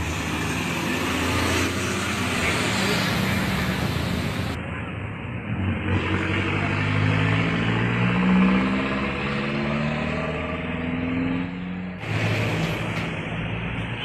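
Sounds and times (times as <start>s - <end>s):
vehicle engine accelerating: 5.5s - 13.8s.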